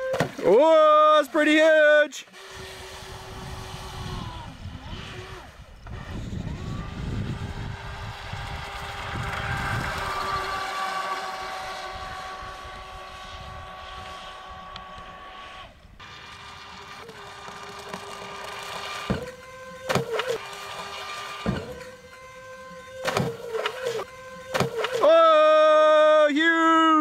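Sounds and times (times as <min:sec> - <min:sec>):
high electric motor whine: 0:02.2 - 0:26.2
wind rumble on microphone: 0:02.5 - 0:16.0.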